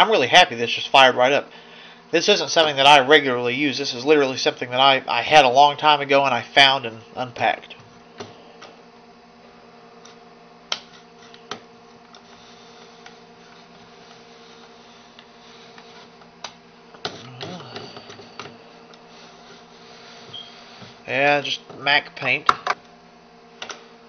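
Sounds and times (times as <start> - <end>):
computer hum: 0.0 - 24.0.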